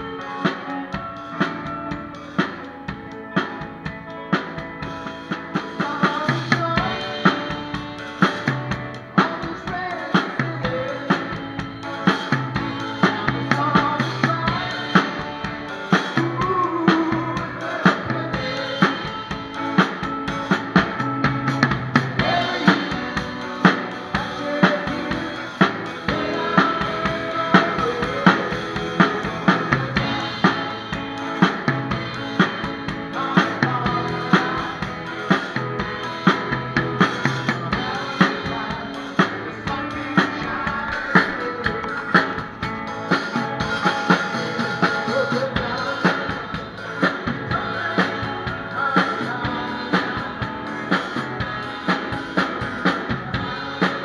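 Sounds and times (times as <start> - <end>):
electric guitars: 0.0 - 54.0
rock band playing: 0.0 - 54.0.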